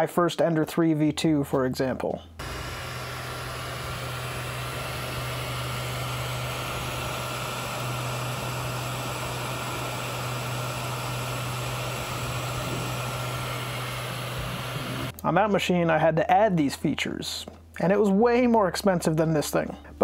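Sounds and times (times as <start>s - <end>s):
printer hum with hiss: 2.4s - 15.1s.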